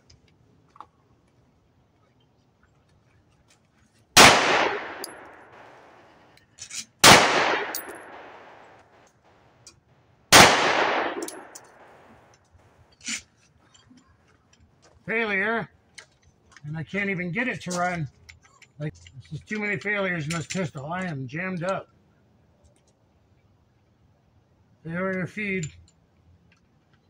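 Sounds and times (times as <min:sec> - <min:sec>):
pistol shots echoing: 0:04.2 - 0:06.2, 0:07.0 - 0:09.0, 0:10.3 - 0:12.2.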